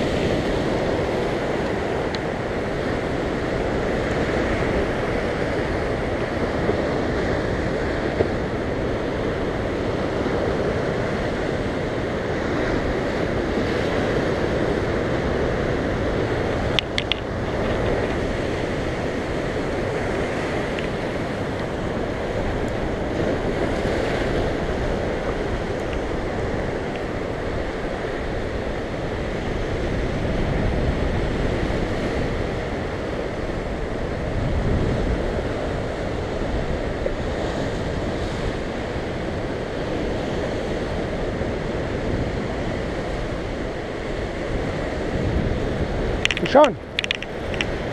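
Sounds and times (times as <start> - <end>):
wind buffeting microphone: 0.0 - 47.9
surf breaking over rocks: 40.8 - 47.9
sharp clicks: 46.2 - 47.8.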